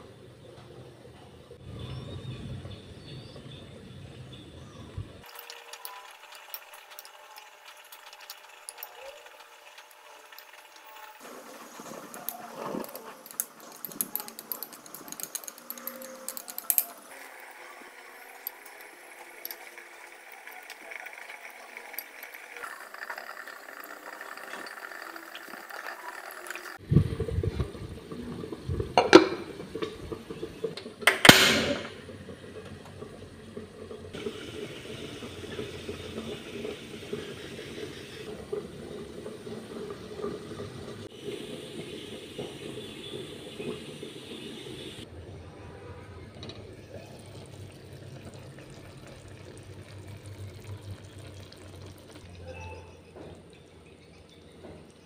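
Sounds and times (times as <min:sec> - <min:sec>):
liquid bubbling under a lid: 0:18.1 - 0:45.1, 0:46.2 - 0:52.5
glass pot lid clinking: 0:29.0 - 0:30.1.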